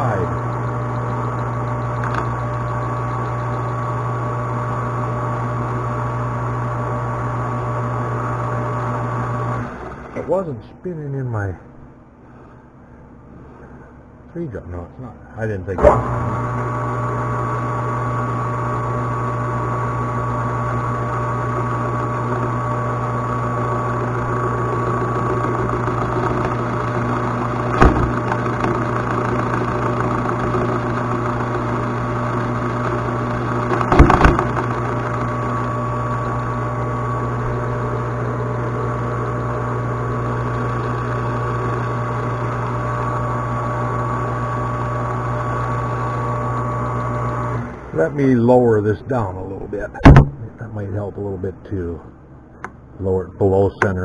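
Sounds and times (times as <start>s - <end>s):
metal lathe humming: 0.0s - 10.5s, 15.8s - 51.1s
brief knocks: 50.0s - 50.5s.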